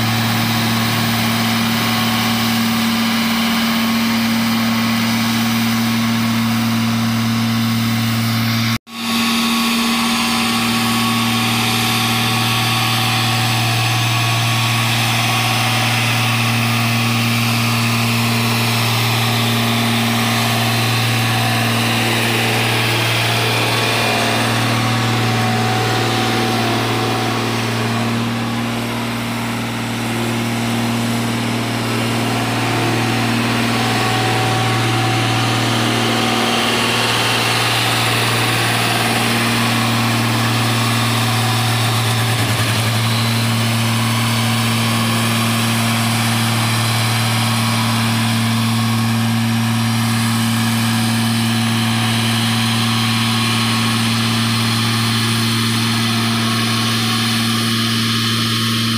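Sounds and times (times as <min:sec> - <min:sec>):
road roller diesel engine running: 0:00.0 - 0:58.9.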